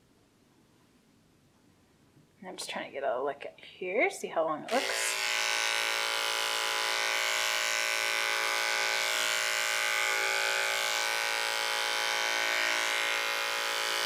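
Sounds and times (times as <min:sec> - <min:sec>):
electric clippers humming: 0:04.7 - 0:14.0.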